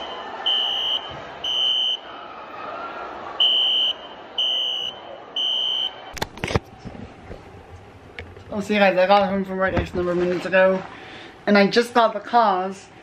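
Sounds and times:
fire alarm horn beeps: 0.0 - 2.1, 3.4 - 6.0.

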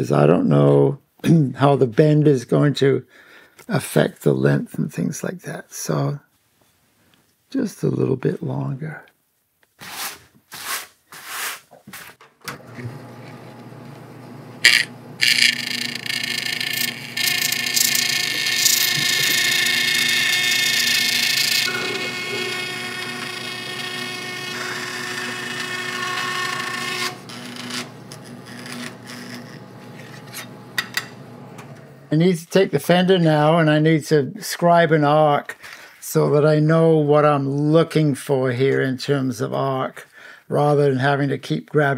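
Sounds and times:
band saw running: 12.5 - 32.1
high-pitched metal cutting: 14.6 - 31.2.

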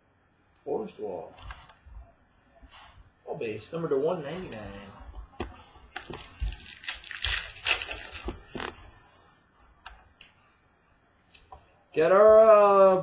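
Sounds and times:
foil pack crinkling and tearing: 6.0 - 8.7.

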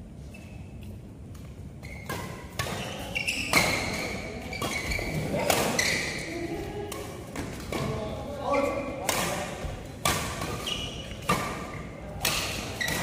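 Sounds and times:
racket hitting shuttlecock: 2.0 - 6.3, 9.0 - 13.0.

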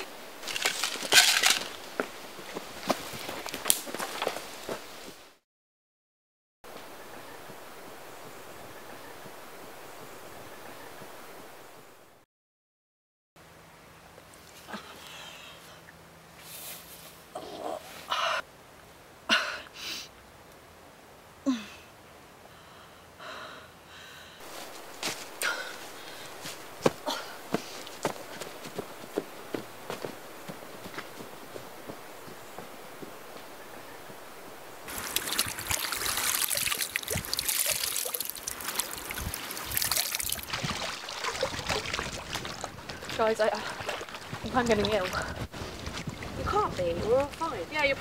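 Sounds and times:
girl whimpering: 21.5 - 21.9
girl breathing heavily: 22.5 - 24.5, 25.4 - 28.4
wet cloth splashing in water: 34.9 - 47.4
water pouring and dripping: 34.9 - 47.5.

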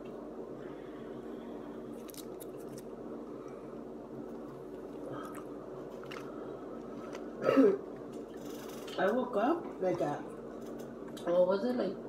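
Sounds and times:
steady low hum: 0.0 - 12.0
soft chewing: 1.5 - 9.0.

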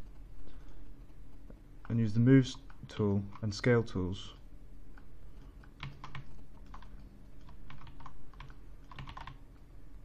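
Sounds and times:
faint low hum: 0.0 - 10.0
keyboard and mouse clicking: 4.9 - 9.4.

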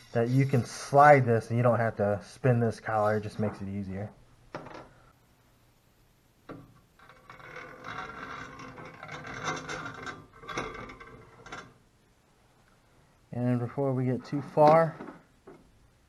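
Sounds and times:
lead screw scraping against metal: 0.0 - 0.9, 7.0 - 11.8.

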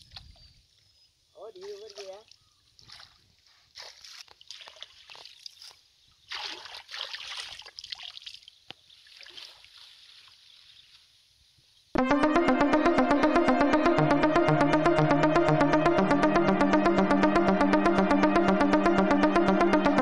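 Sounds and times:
splashing: 3.8 - 5.3, 6.3 - 8.4.

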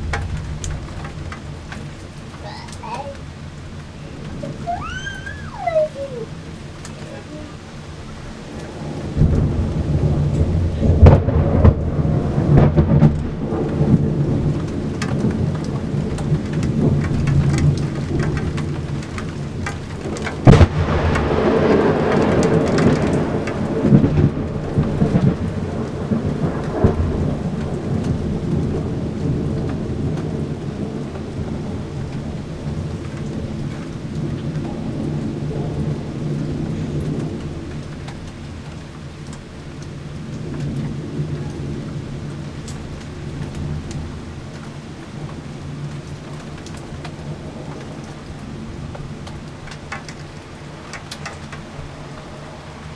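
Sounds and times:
thunder crack: 0.0 - 1.9, 8.7 - 18.9, 20.0 - 37.8
thunder rumbling: 0.0 - 39.3
rain: 0.0 - 52.9.

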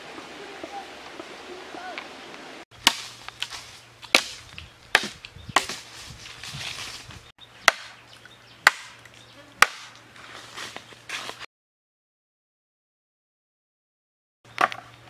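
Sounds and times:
knife chopping bamboo: 2.8 - 3.1, 4.1 - 5.8, 7.6 - 8.0, 8.6 - 9.0, 9.6 - 10.0.

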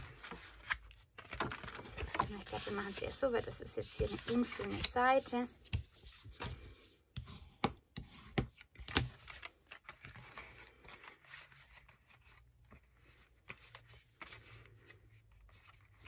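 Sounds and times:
paper rustling and scraping: 0.0 - 6.8, 9.7 - 16.0.

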